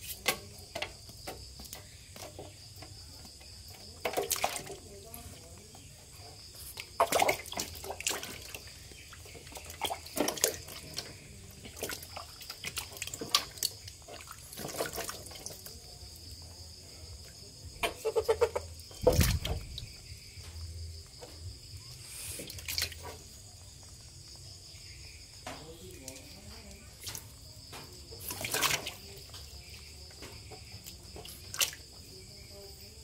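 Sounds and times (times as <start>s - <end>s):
water splashing in plastic tub: 0.0s - 33.0s
water dripping: 6.6s - 16.2s.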